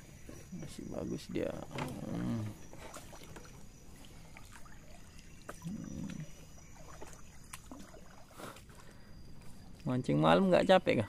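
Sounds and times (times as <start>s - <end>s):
water trickling and dripping: 0.1s - 11.0s.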